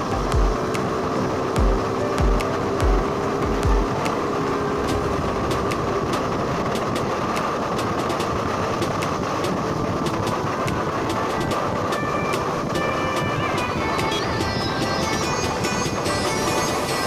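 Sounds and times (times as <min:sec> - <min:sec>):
motorcycle engine running: 0:00.0 - 0:17.0
wind and road noise: 0:00.0 - 0:17.0
light irregular ticks: 0:04.8 - 0:12.5.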